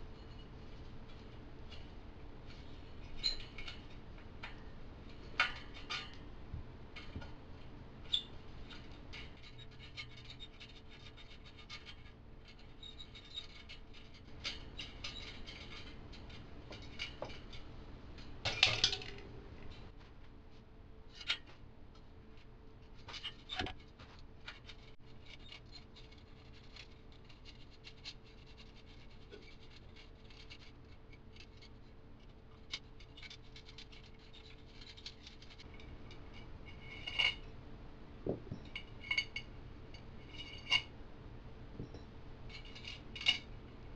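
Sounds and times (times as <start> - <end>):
small metallic clicks and rattles: 2.5 - 6.3, 6.9 - 19.9, 23.1 - 37.5, 42.5 - 43.6.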